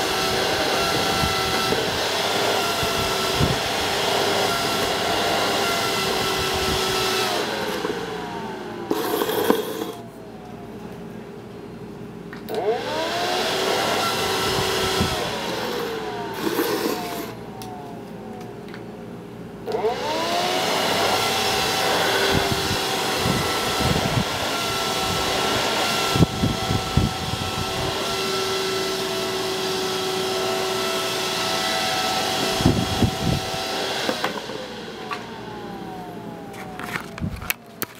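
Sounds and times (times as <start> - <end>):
fan whine and air rush: 0.0 - 37.9.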